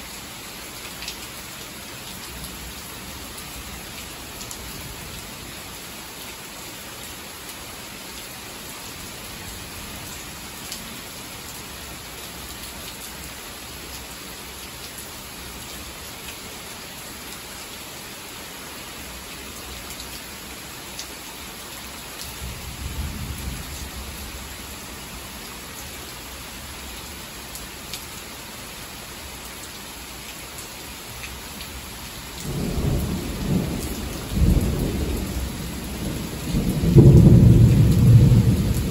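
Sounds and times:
heavy rain: 0:00.0 - 0:38.9
thunder rumbling: 0:32.5 - 0:38.9.

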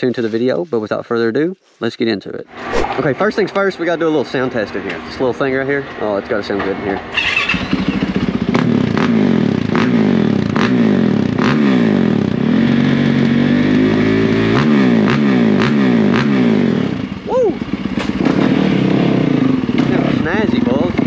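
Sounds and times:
motorcycle engine revving: 0:07.1 - 0:21.0.

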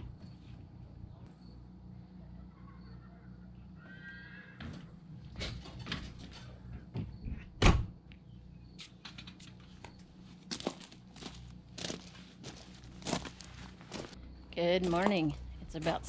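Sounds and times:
trailer door shutting: 0:04.6 - 0:07.9
footsteps walking away: 0:09.4 - 0:14.2, 0:14.8 - 0:16.0.

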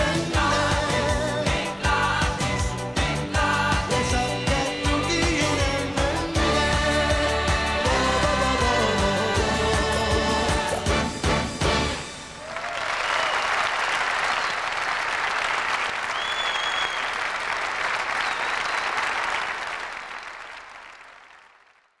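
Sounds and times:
pop band song: 0:00.0 - 0:12.1
studio audience applauding: 0:12.3 - 0:22.0.

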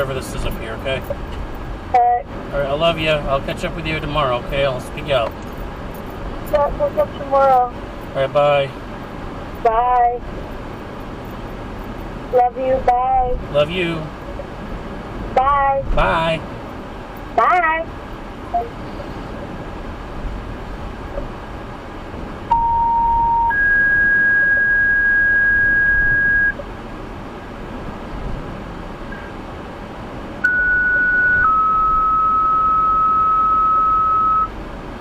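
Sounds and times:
car and road noise hum: 0:00.0 - 0:35.0
two-tone pager tones: 0:22.5 - 0:26.6, 0:30.4 - 0:34.5.

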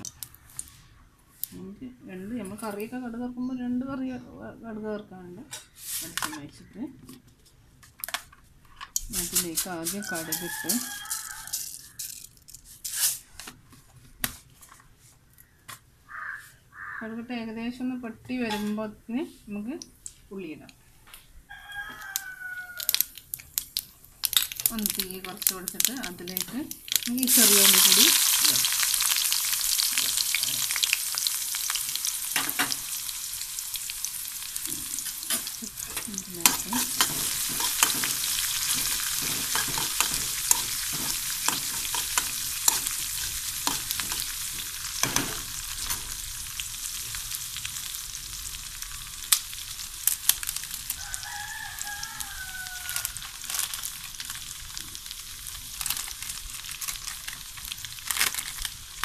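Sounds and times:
shallots sizzling in hot oil: 0:05.8 - 0:06.4, 0:09.0 - 0:13.2, 0:21.7 - 0:59.0.

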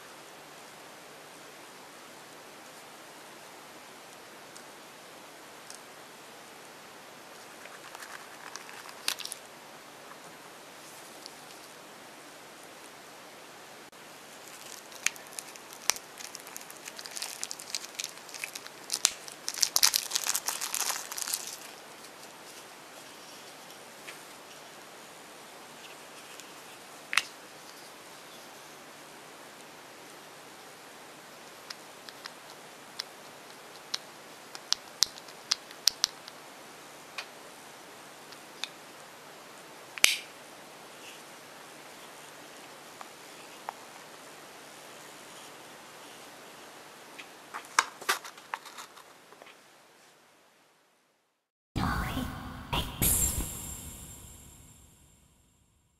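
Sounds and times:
plastic wrapper crinkling: 0:07.4 - 0:09.5, 0:14.3 - 0:22.6.

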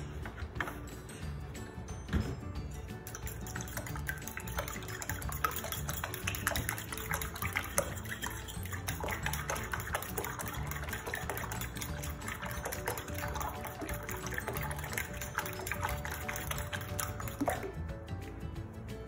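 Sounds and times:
tines clicking against bowl: 0:03.0 - 0:17.5
fork beating eggs in a bowl: 0:03.0 - 0:17.8.

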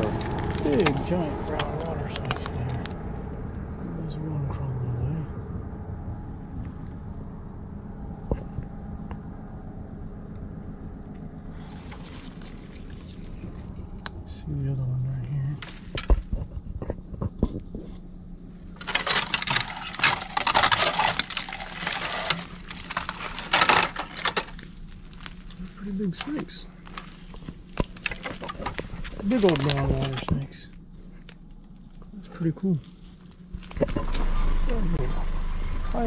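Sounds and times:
night insects chorus: 0:00.0 - 0:36.0
dry leaves rustling and crackling: 0:18.8 - 0:25.6, 0:26.8 - 0:30.2.

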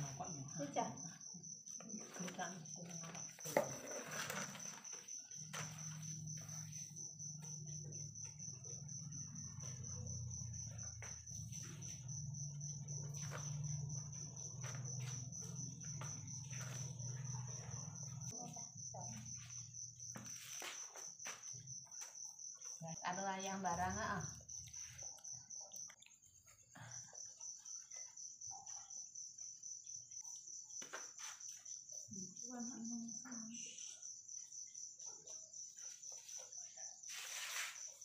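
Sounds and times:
crickets trilling: 0:00.0 - 0:38.0.

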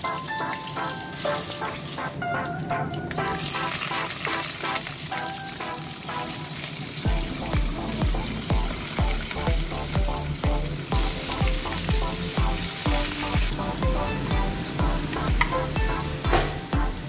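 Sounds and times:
meat sizzling in hot oil: 0:00.0 - 0:02.2, 0:05.7 - 0:13.6
background music with drum beat: 0:07.1 - 0:17.0.

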